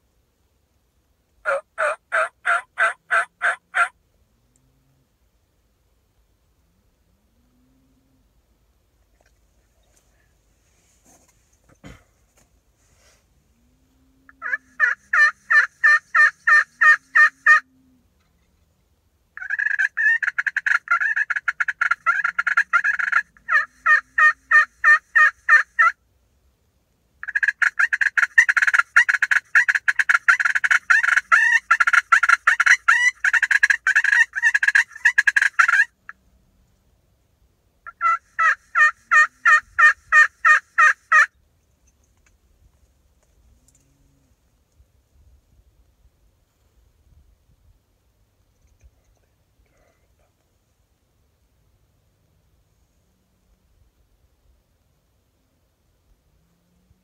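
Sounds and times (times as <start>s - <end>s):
turkey call yelps: 1.4s - 4.0s, 14.3s - 17.7s, 19.4s - 26.0s, 27.2s - 36.0s, 37.8s - 41.3s.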